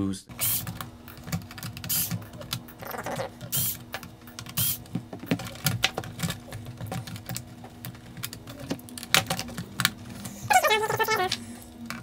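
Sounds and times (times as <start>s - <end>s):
plastic and metal parts clicking: 3.9s - 10.2s.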